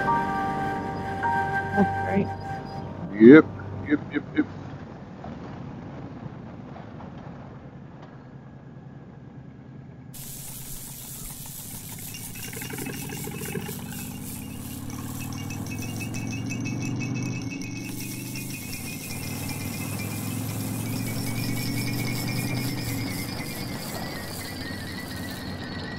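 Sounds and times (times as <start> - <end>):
road and wind noise: 1.9 - 25.9
motorcycle engine revving up: 10.6 - 25.9.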